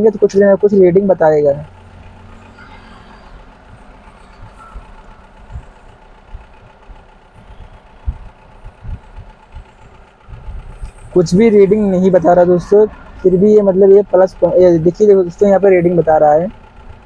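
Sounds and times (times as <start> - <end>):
faint engine rumble: 0.0 - 17.0
short low thumps: 3.7 - 11.4.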